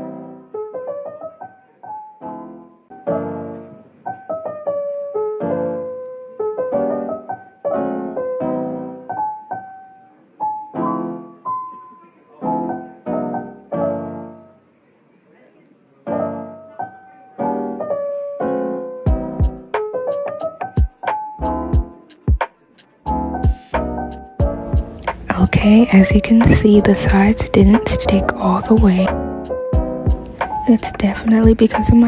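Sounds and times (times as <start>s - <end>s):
piano music: 0.0s - 14.8s, 16.1s - 32.0s.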